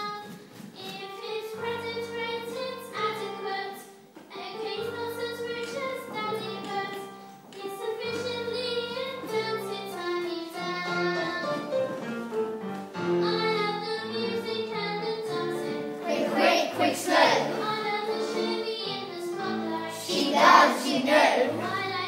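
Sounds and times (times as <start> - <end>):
girl singing into microphone: 0.0 - 12.0, 12.9 - 22.0
instrumental accompaniment: 0.0 - 22.0.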